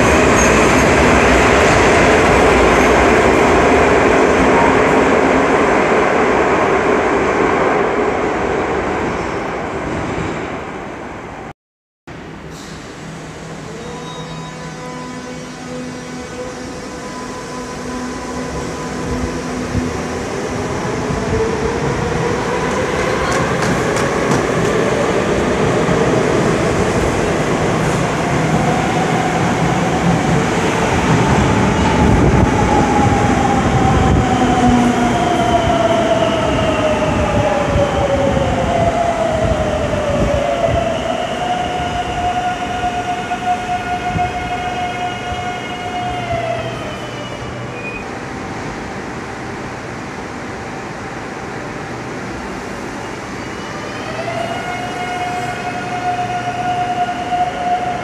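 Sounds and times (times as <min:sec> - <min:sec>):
train wheels on rails: 0:19.1 - 0:44.6.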